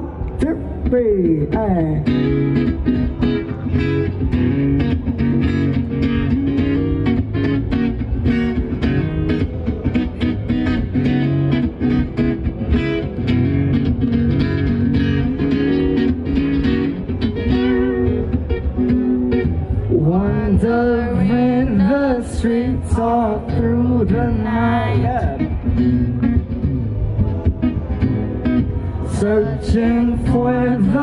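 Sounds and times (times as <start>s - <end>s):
acoustic guitar strumming: 1.3s - 31.0s.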